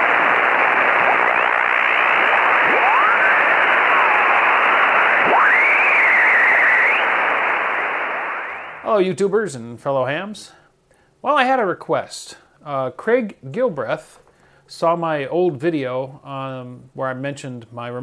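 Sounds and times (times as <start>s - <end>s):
sliding radio whistles: 0.0s - 8.9s
radio static hiss: 0.0s - 9.0s.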